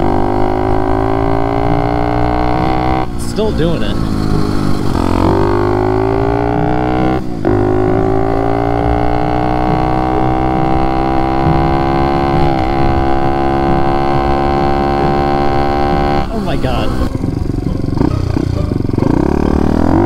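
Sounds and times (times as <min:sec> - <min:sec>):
motorbike engine revving: 0:00.0 - 0:20.0.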